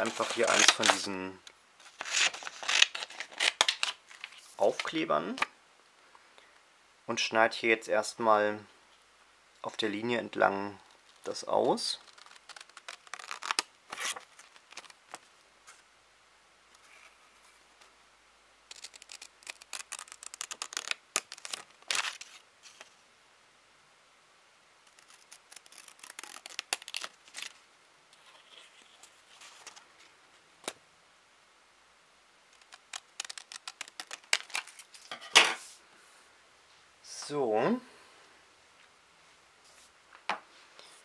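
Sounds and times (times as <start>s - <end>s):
scissors snipping paper: 18.7s - 22.3s, 24.9s - 27.5s, 32.6s - 34.8s.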